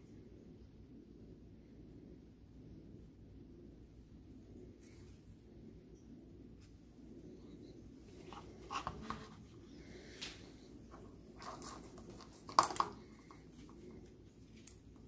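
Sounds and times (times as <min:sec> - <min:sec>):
plastic rustling: 0:08.1 - 0:15.0.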